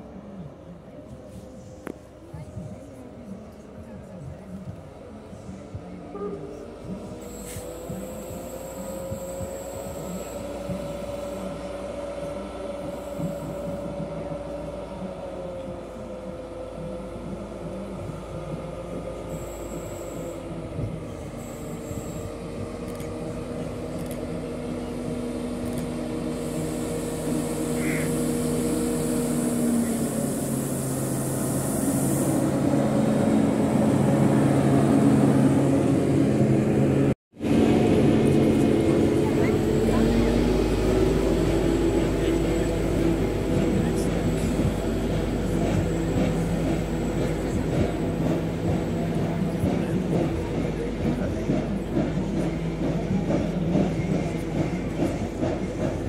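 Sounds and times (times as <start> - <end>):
diesel locomotive engine humming: 0.0 - 56.0.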